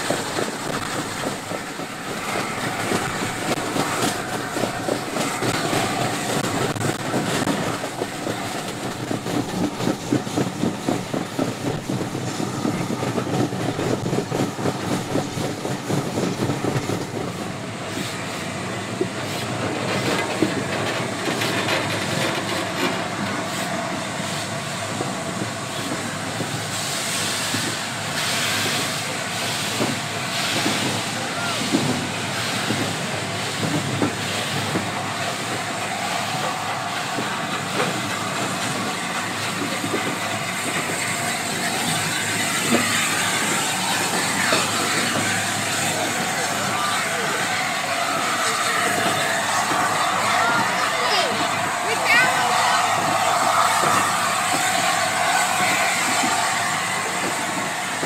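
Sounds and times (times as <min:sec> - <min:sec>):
steam hiss: 0:00.0 - 0:20.5, 0:21.1 - 0:58.0
train running noise: 0:00.0 - 0:58.0
wheels clattering over rail joints: 0:19.0 - 0:23.7, 0:29.0 - 0:58.0.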